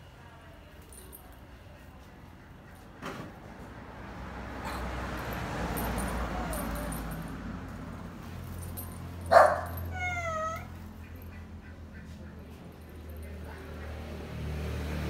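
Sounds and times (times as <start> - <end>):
animal harsh cry: 9.6 - 10.7.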